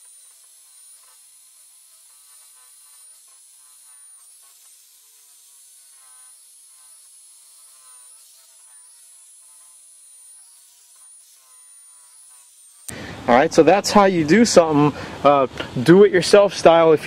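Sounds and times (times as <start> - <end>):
electric drill motor whine: 0.0 - 13.3.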